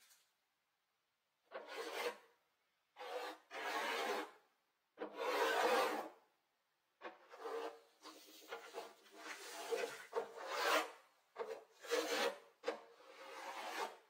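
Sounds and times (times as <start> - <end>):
brush scraping paint on wood: 3.0 - 4.4, 7.0 - 14.0.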